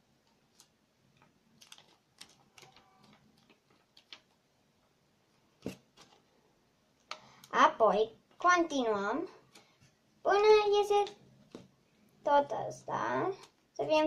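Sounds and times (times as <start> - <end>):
paper being folded and creased: 0.3 - 4.4.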